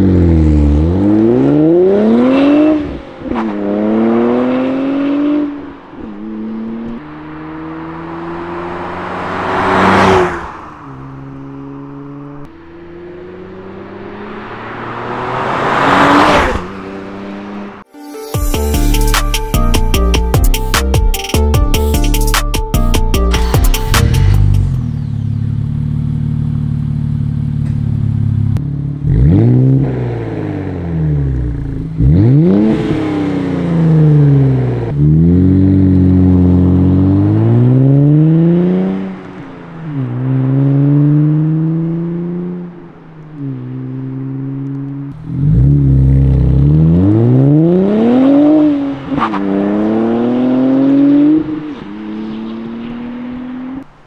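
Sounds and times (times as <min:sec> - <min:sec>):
car engine revving and accelerating: 0:00.0 - 0:17.9, 0:23.8 - 0:53.9
car engine idling: 0:23.8 - 0:29.0.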